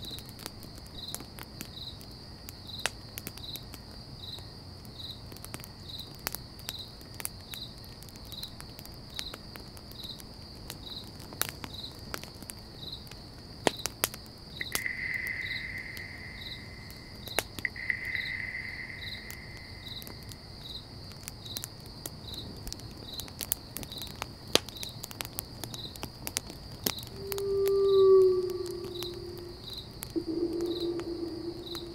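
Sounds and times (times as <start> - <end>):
campfire crackling: 0.0 - 31.9
insects chirping: 0.0 - 31.9
drawn-out whistling tones: 14.6 - 20.4, 27.1 - 31.9
low tone: 27.1 - 31.9.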